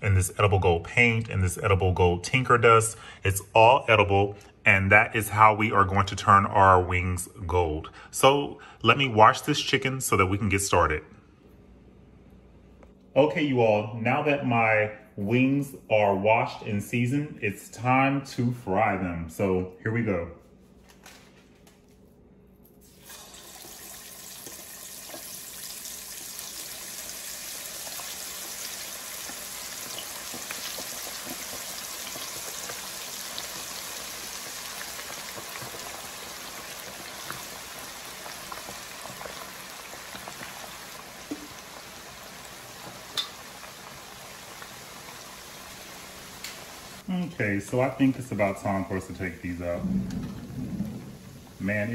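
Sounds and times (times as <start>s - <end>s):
chicken frying in hot oil: 22.9s - 47.1s.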